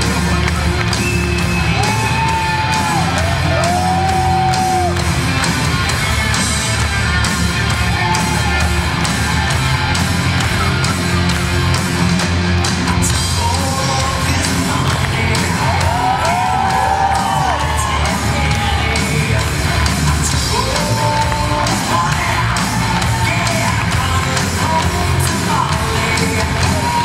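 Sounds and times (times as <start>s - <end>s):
audience shouting and whooping: 0.0s - 5.4s, 7.6s - 12.1s, 15.2s - 24.1s
loud rock music: 0.0s - 27.0s.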